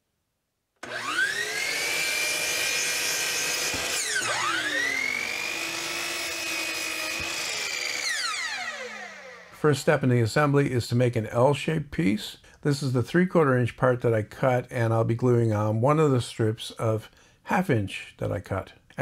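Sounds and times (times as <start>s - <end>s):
miter saw motor whine: 0.8s - 9.6s.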